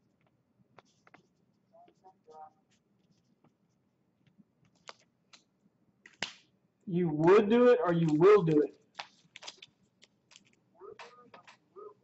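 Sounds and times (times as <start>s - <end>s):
faint clicks and taps: 0.0s - 6.2s.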